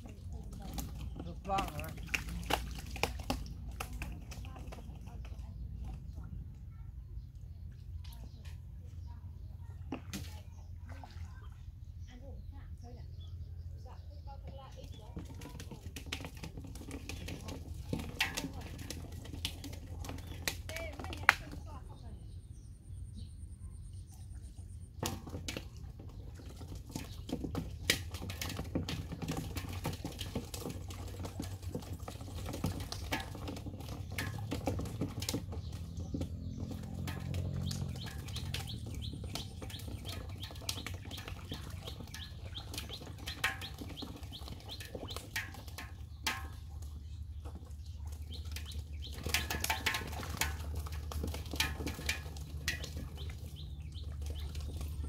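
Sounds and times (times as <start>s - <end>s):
fish flapping: 0.0s - 6.0s, 15.1s - 21.6s, 25.0s - 55.0s
splashing in muddy water: 0.0s - 13.7s, 14.6s - 22.4s, 23.9s - 55.0s
low steady rumble: 0.0s - 55.0s.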